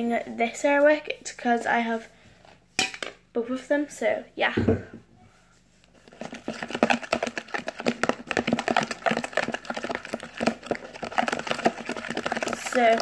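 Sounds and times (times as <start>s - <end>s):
toothbrush stirring slime clicking: 5.8s - 13.0s.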